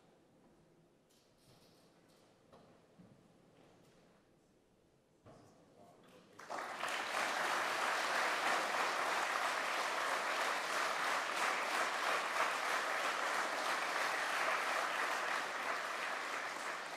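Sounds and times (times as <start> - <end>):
audience applauding: 6.4 - 16.9.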